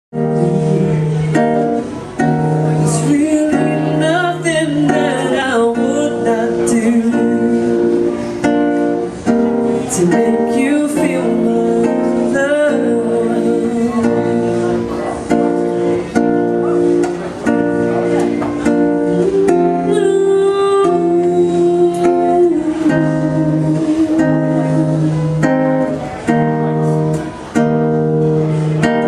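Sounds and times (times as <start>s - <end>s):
acoustic guitar chords: 0.1s - 29.0s
woman singing: 2.9s - 8.1s, 9.9s - 14.6s, 19.2s - 25.4s.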